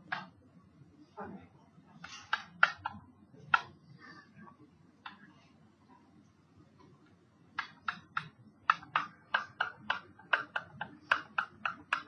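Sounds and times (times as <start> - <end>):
pen tapping on writing surface: 7.6 - 12.0.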